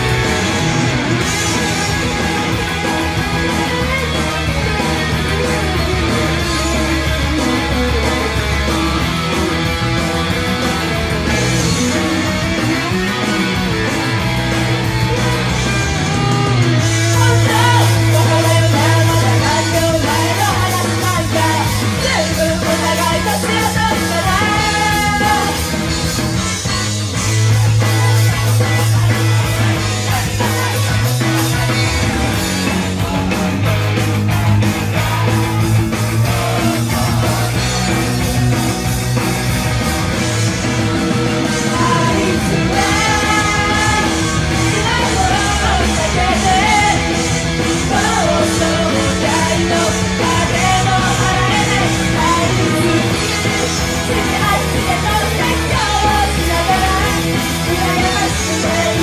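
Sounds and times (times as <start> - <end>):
loud rock band music: 0.0 - 59.0
women singing into microphones: 17.1 - 25.6, 41.7 - 47.2, 47.8 - 59.0.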